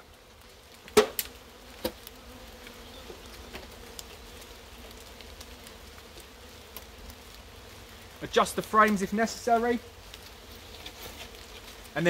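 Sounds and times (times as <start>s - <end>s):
honeybees buzzing: 0.0s - 12.0s.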